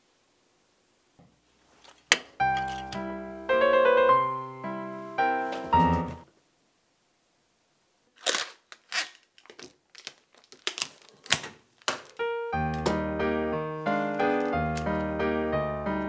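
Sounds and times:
plastic wrapping crinkling: 0:01.6 - 0:03.0, 0:08.1 - 0:13.0, 0:13.8 - 0:15.2
keyboard music with steady beat: 0:02.4 - 0:06.3, 0:12.2 - 0:16.0.

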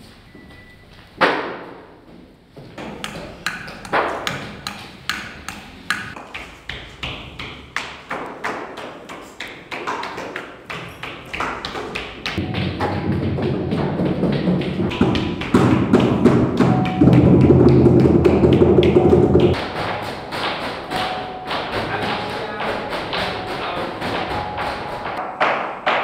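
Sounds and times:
sharp taps and knocks: 0:02.8 - 0:26.0.

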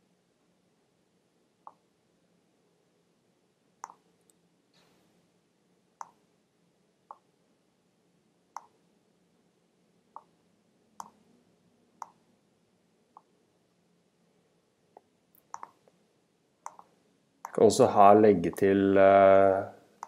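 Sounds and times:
mouse button clicks: 0:03.8 - 0:04.0, 0:06.0 - 0:06.2, 0:08.6 - 0:08.8, 0:11.0 - 0:11.2, 0:15.4 - 0:15.8, 0:16.6 - 0:17.6.

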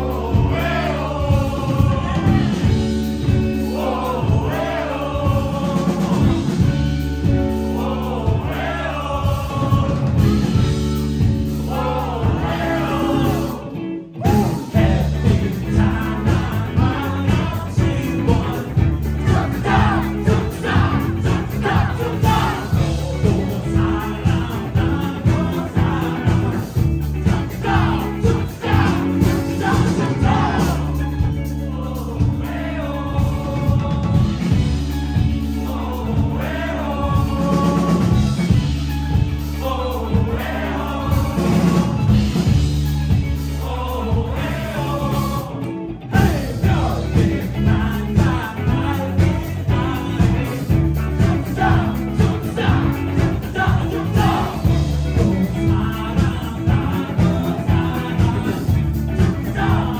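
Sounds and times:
live band playing: 0:00.0 - 0:59.9
person singing: 0:43.6 - 0:59.9.

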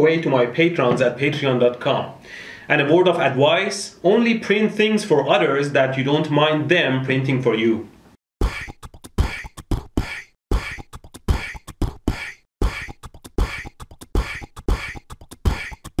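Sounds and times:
person beatboxing: 0:08.4 - 0:16.0.

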